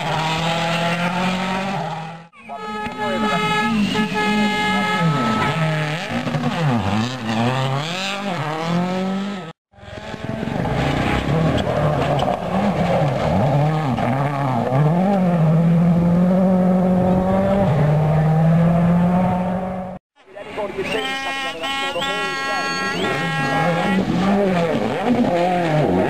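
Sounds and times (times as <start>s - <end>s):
rally car engines revving: 0.0s - 26.0s.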